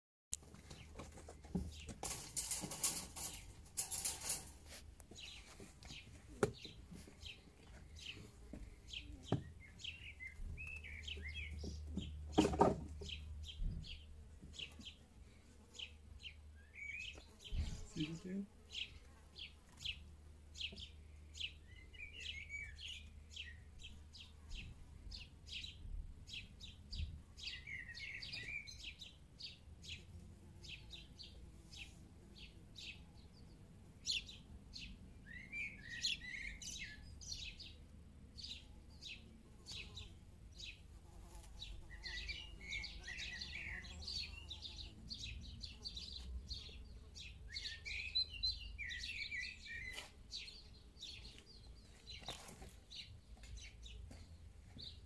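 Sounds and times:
small birds chirping: 0.3 - 55.0.

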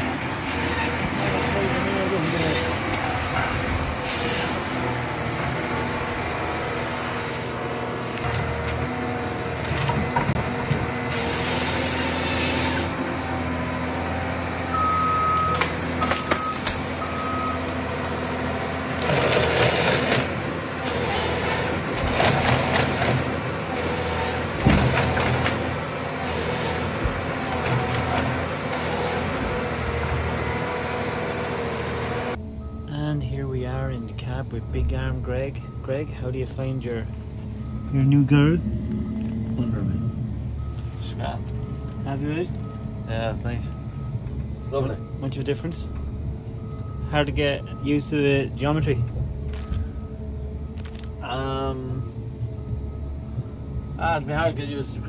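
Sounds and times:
diesel engine running: 0.0 - 55.0
beeps: 14.7 - 17.7, 37.5 - 48.2.

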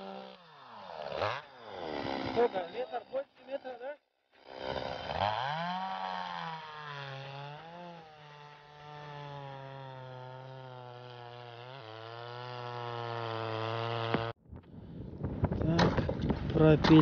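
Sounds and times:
chainsaw cutting ice: 0.0 - 14.4.

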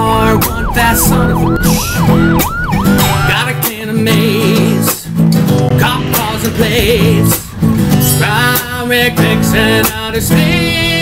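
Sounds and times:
police siren yelping: 0.0 - 4.6
guitar-backed music: 0.0 - 11.0.

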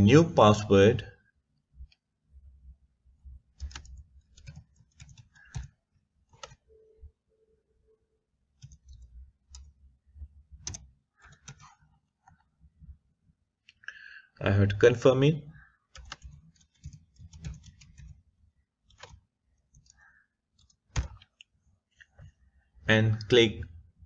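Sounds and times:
keyboard typing clicks: 3.6 - 6.9, 8.6 - 9.8, 10.5 - 12.4, 15.6 - 18.2, 18.9 - 21.5.

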